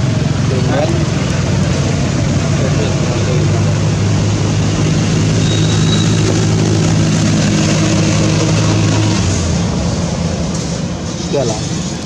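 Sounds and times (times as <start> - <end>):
engine low hum: 0.0 - 12.0.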